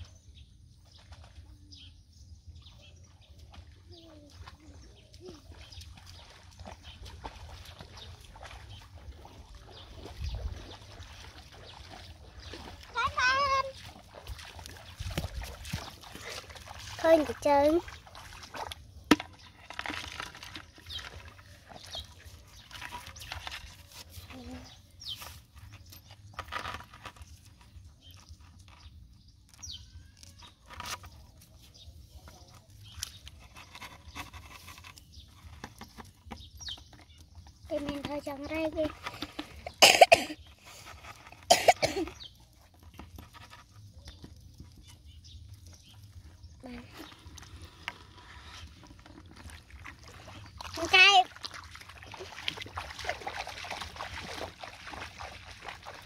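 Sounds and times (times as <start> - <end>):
water splashing and dripping: 2.5 - 33.4, 35.3 - 56.0
person coughing: 39.8 - 40.4, 41.5 - 42.1.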